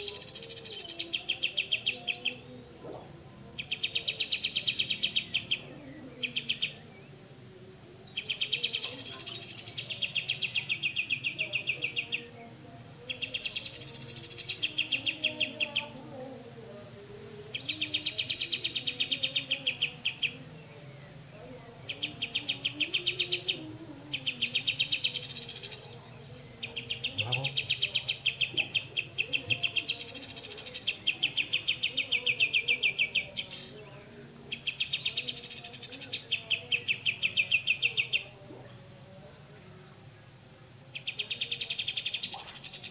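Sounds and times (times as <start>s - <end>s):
bird song rattle: 26.7s - 33.8s, 41.0s - 42.9s.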